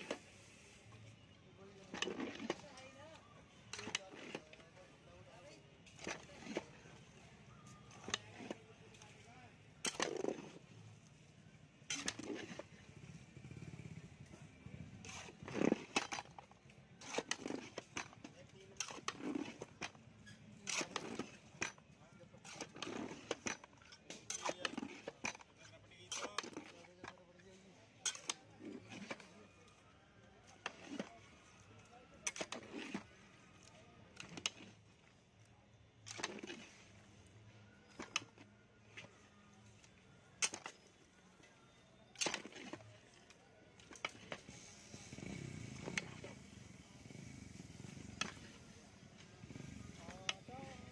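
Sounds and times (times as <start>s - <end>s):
metal ladle scraping pot: 11.9s - 12.8s, 15.0s - 16.3s, 22.4s - 25.5s, 28.0s - 29.3s
spoon scraping metal pot: 15.1s - 16.0s, 28.0s - 29.3s.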